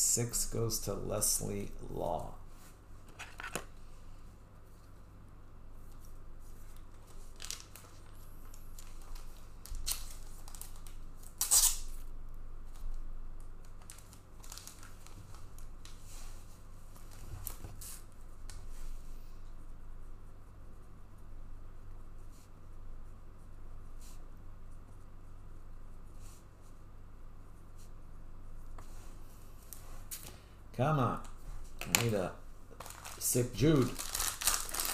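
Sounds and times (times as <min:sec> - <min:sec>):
card wrappers ripping and rustling: 0:06.8 - 0:11.9, 0:13.7 - 0:16.0, 0:31.8 - 0:34.9.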